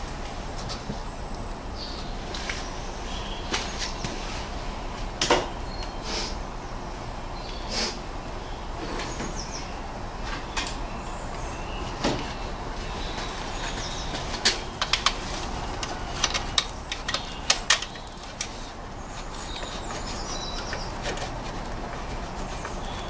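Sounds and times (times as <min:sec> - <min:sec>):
steady background hiss: 0:00.0 - 0:23.0
faint high bird chirps: 0:01.7 - 0:04.2
sharp clicks and taps of tools: 0:14.4 - 0:15.2, 0:15.8 - 0:18.5.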